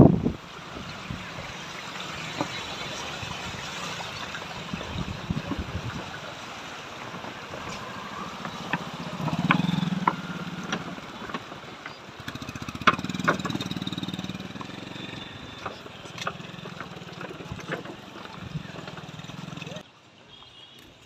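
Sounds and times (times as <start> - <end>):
wooden planks knocking: 7.2 - 14.8
motorcycle engine running: 8.4 - 19.8.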